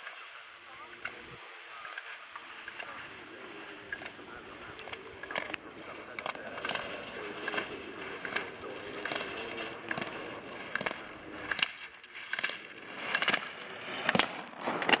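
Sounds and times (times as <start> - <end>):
gate poles clacking: 3.8 - 15.0
ski edges scraping snow: 8.0 - 15.0.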